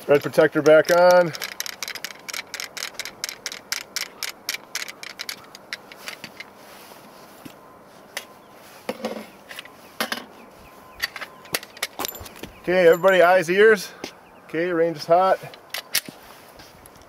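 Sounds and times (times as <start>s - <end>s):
rapid light metallic clicking: 0.1s - 6.0s.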